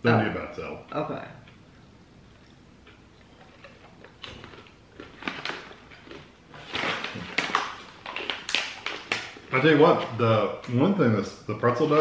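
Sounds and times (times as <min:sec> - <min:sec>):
snack bag crinkling: 0:03.5 - 0:10.1.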